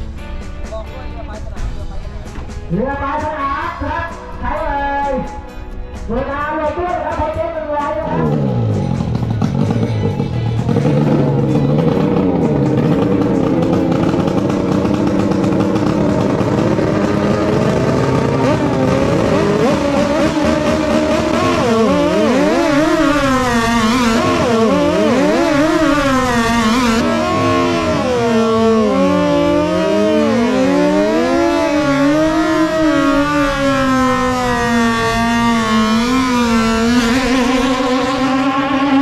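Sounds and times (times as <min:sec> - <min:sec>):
boat engines revving: 0:08.1 - 0:39.0.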